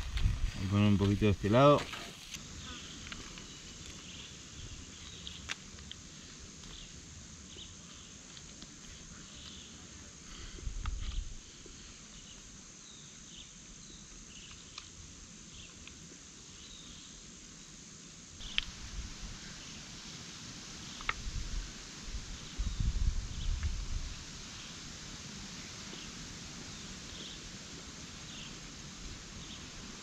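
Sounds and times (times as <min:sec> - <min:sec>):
wind on microphone: 0:00.0 - 0:01.5, 0:10.5 - 0:11.4, 0:21.1 - 0:24.4
insects buzzing: 0:00.0 - 0:30.0
faint sharp clicks: 0:14.4 - 0:14.9.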